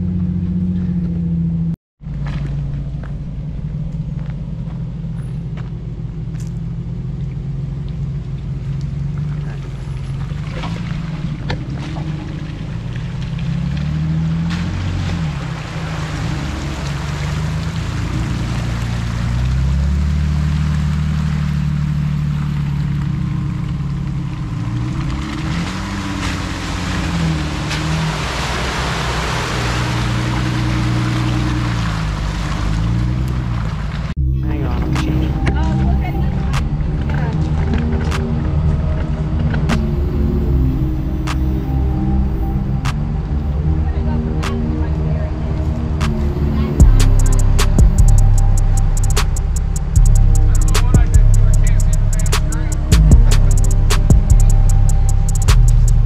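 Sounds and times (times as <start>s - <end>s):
car engine revving off-road: 0.0s - 56.0s
rushing noise: 24.5s - 56.0s.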